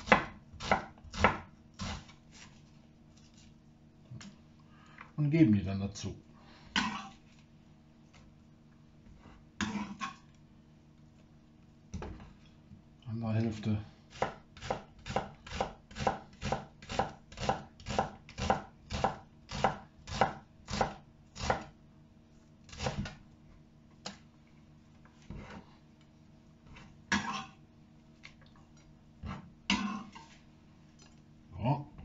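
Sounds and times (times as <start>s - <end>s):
knife slicing onion on board: 0.0s - 2.6s, 9.6s - 10.2s, 14.1s - 21.8s, 22.7s - 23.2s.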